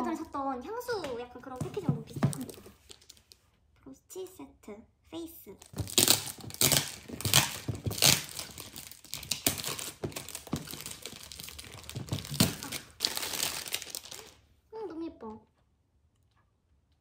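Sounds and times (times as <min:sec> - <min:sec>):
plastic shrink-wrap ripping: 0:05.6 - 0:14.4.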